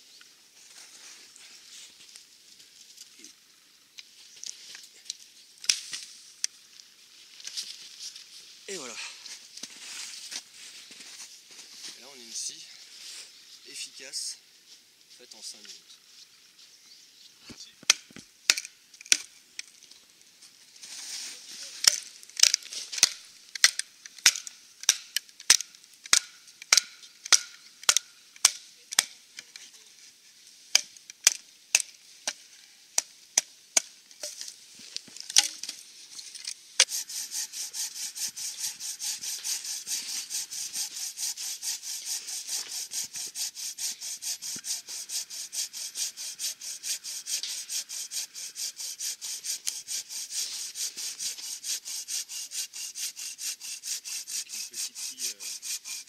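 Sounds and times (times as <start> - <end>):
bow saw cutting wood: 36.8 - 56.0.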